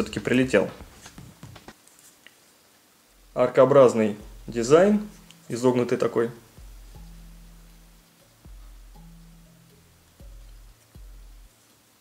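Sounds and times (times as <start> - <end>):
low sustained bass notes: 3.1 - 11.5.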